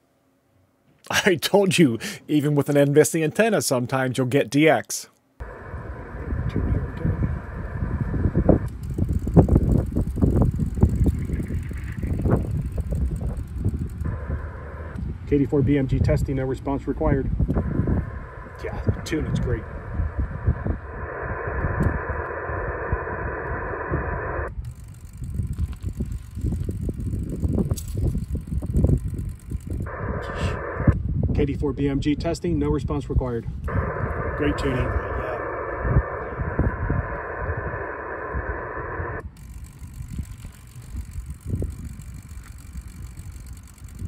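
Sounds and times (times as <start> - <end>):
radio static hiss: 5.4 - 8.7, 10.9 - 13.4, 14.0 - 24.6, 29.8 - 31.0, 33.7 - 39.3
low rumbling and thumps: 17.2 - 24.4.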